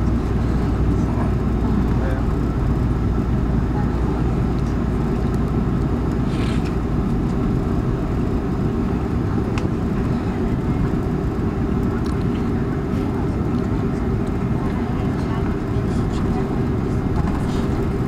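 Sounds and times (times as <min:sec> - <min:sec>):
airliner engines rumbling: 0:00.0 - 0:18.0.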